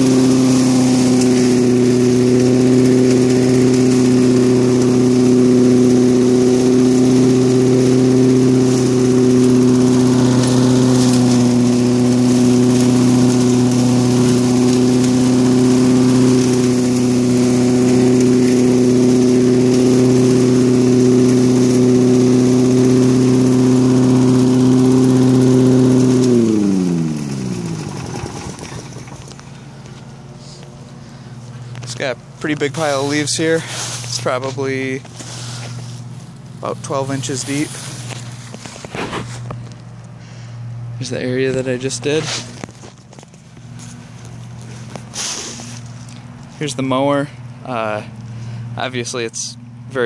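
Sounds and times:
lawnmower engine running: 0.0s - 50.0s
air blowing from chute: 32.7s - 39.4s, 45.0s - 46.0s.

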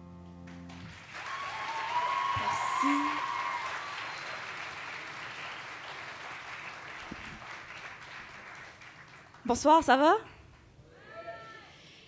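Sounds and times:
audience applauding: 0.5s - 9.8s.

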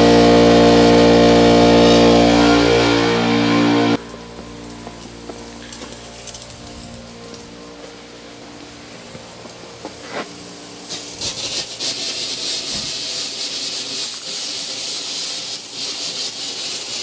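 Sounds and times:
sprinkler heads hissing: 4.0s - 17.0s.

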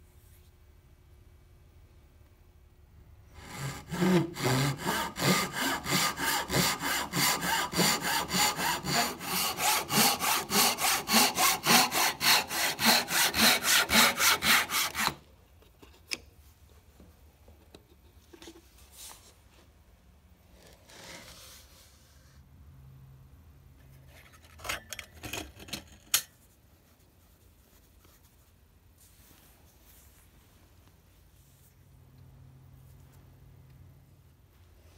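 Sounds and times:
handsaw cutting a stick: 3.4s - 15.2s
faint handling sounds: 15.3s - 22.5s, 23.7s - 33.8s.

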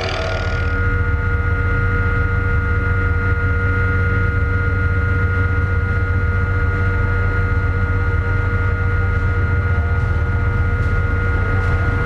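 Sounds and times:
high whining tones: 0.0s - 1.2s
helicopter rotor and engine drone: 0.0s - 11.9s.

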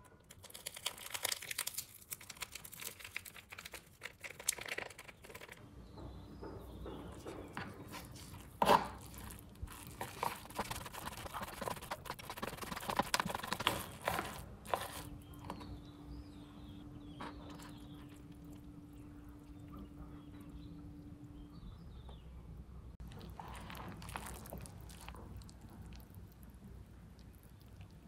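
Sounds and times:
faint low hum: 0.0s - 28.0s
chopsticks stirring noodles in cup: 7.6s - 15.2s, 23.1s - 26.0s.

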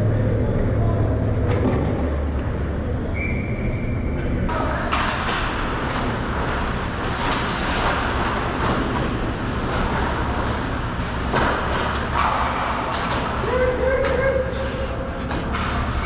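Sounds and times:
skates scraping on ice: 4.8s - 16.0s.

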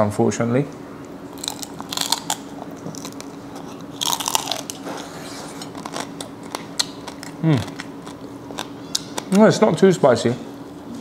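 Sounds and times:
crab shell crunching and cracking: 1.3s - 9.4s.

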